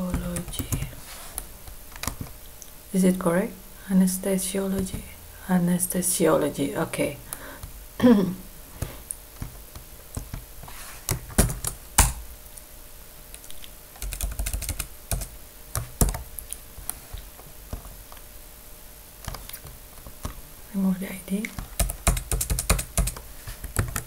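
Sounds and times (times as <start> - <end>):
computer keyboard typing: 0.0 - 0.9, 11.1 - 12.2, 14.0 - 16.3, 21.5 - 24.0.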